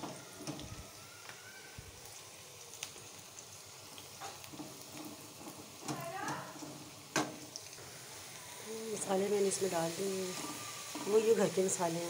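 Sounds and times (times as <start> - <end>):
onions sizzling in oil: 0.0 - 12.0
spatula stirring: 9.9 - 11.8.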